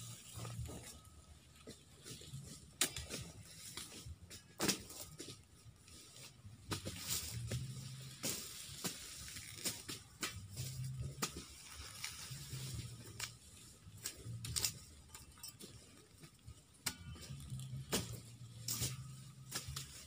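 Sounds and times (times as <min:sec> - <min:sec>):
low wavering hum: 0:00.0 - 0:20.0
machete chopping sugarcane: 0:02.8 - 0:05.2, 0:06.7 - 0:12.1, 0:16.8 - 0:20.0.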